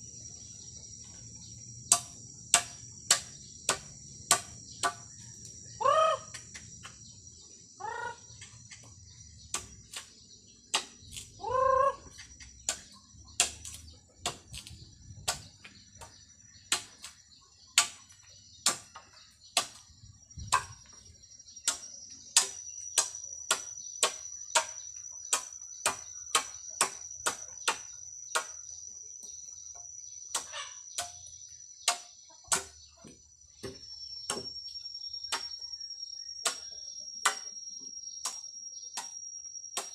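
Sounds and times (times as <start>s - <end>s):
insects droning: 0.0s - 39.9s
machete chopping bamboo: 1.9s - 5.1s, 9.5s - 10.1s, 10.7s - 11.3s, 12.6s - 16.1s, 16.7s - 17.2s, 17.8s - 19.9s, 20.5s - 20.8s, 21.6s - 28.6s, 30.3s - 31.2s, 31.8s - 32.8s, 33.6s - 34.6s, 35.3s - 35.6s, 36.4s - 37.5s, 38.2s - 39.1s
chicken calling: 5.8s - 6.4s, 11.4s - 12.3s.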